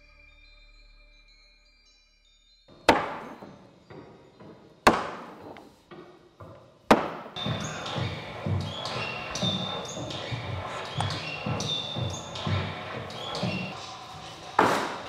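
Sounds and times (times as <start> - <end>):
loud ringing percussive hits: 2.7 - 5.5
electronic soundtrack music: 7.4 - 15.0.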